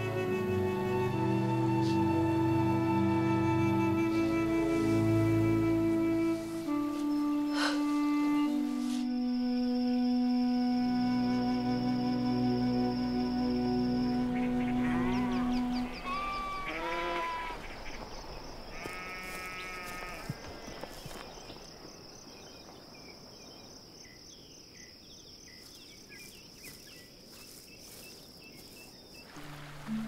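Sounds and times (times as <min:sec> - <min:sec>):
soft music: 0:00.0 - 0:16.3, 0:29.3 - 0:30.0
sheep bleating: 0:16.1 - 0:17.6, 0:18.8 - 0:20.3.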